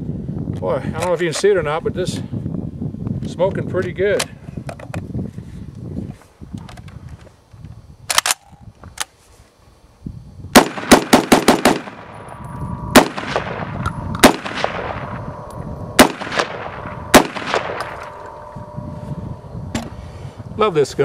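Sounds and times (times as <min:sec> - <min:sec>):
rifle clicks: 0:08.1 - 0:09.1
rifle shots with echo: 0:10.6 - 0:12.3, 0:12.9 - 0:15.3, 0:16.0 - 0:18.3.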